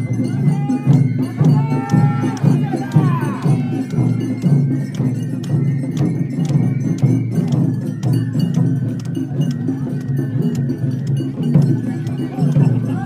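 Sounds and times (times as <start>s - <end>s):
crowd chanting rhythmically: 0.5s - 4.1s.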